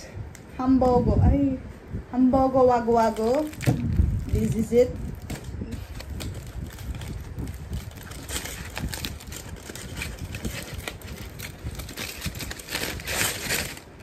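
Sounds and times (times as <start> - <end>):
aluminium foil crinkling: 3.0 - 14.0.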